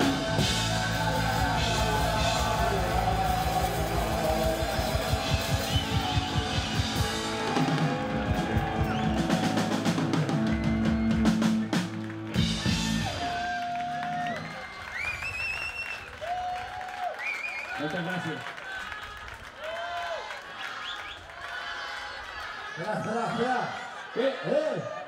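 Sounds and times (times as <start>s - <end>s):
rock band playing: 0.0s - 14.4s.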